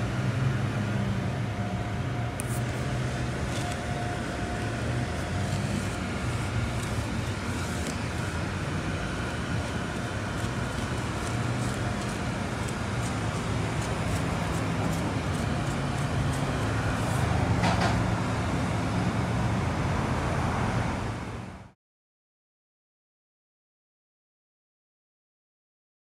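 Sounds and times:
low mechanical hum: 0.0 - 21.8.

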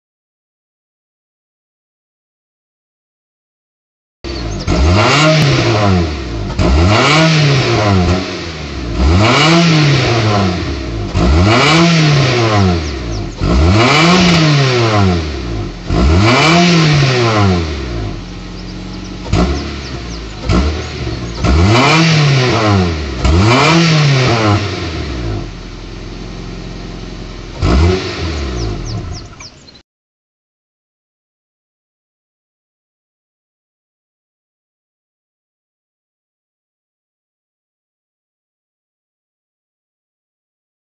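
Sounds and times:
car engine revving: 4.3 - 29.8.

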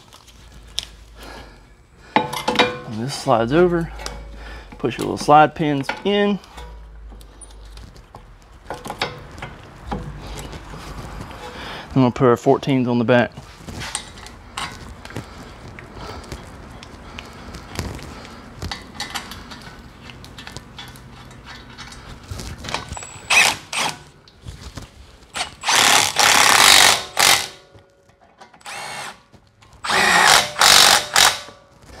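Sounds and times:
cordless power tool spinning bolts: 23.0 - 24.0, 25.4 - 27.6, 28.6 - 29.2, 29.8 - 31.5.

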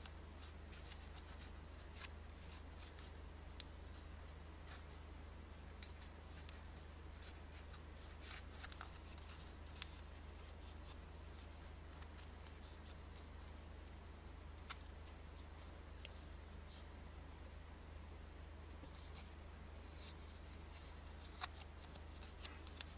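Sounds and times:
paper banknote crackling: 0.4 - 3.2, 5.8 - 13.6, 19.9 - 22.9.

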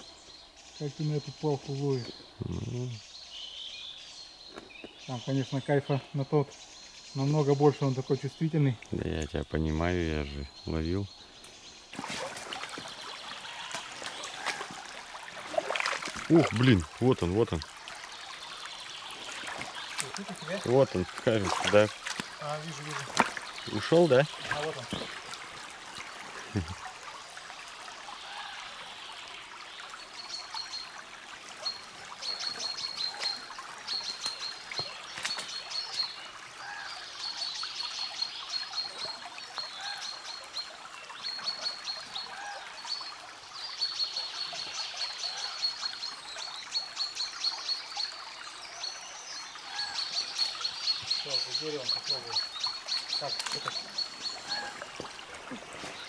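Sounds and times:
river trickling over stones: 0.0 - 56.0
faint bird calls: 12.8 - 15.6, 49.6 - 56.0.

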